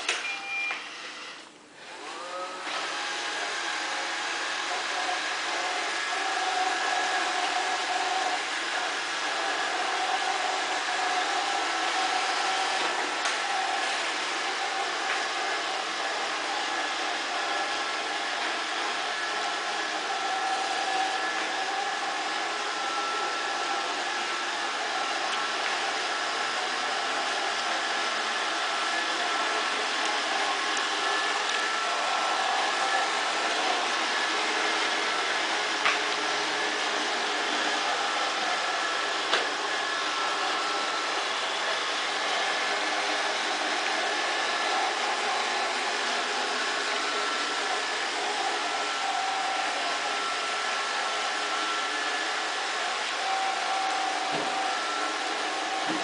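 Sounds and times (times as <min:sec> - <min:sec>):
robot vacuum whirring: 0:00.0 - 0:56.0.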